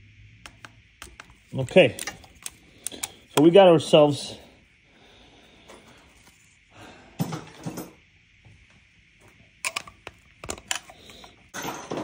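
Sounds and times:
torque wrench clicks: 0:00.5 - 0:03.5.

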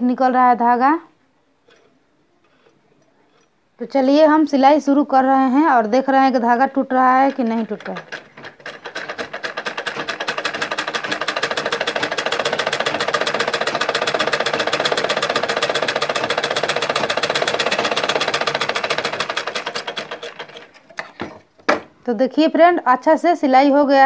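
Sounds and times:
sewing machine stitching fast: 0:07.3 - 0:21.0.

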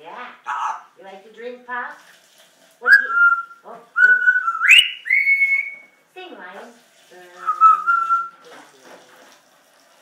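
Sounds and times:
parrot chatter: 0:00.4 - 0:00.9
parrot whistling held notes: 0:02.9 - 0:05.9.

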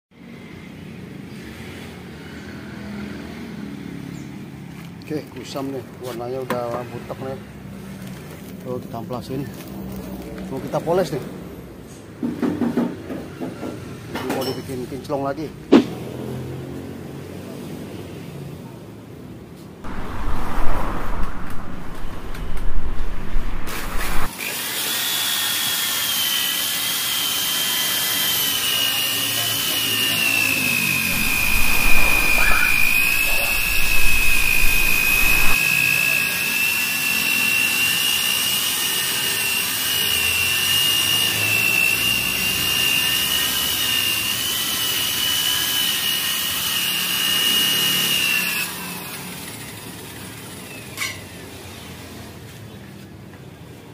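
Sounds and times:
loud uneven rumbling: 0:19.9 - 0:24.3
electric car polisher whining: 0:25.9 - 0:50.0.

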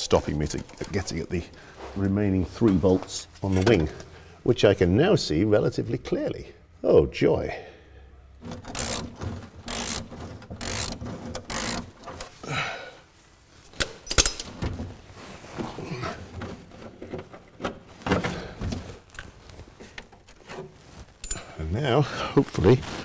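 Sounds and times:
hand tool scraping: 0:08.4 - 0:12.4
sharp metallic clink: 0:21.2 - 0:21.6.

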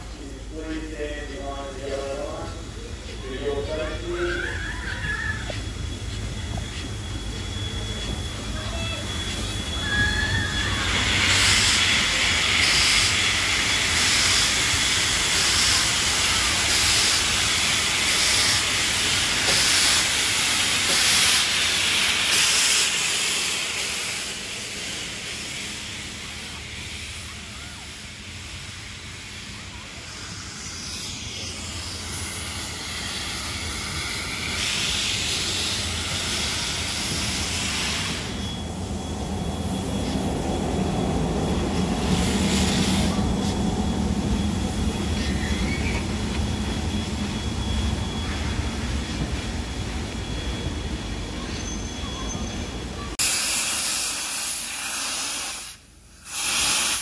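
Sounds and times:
steam locomotive hissing: 0:00.0 - 0:57.0.

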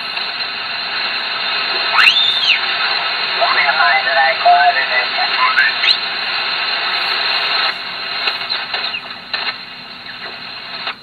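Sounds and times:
radio band noise hiss: 0:00.0 - 0:11.0
pitch-sliding radio chirps: 0:01.7 - 0:07.8.

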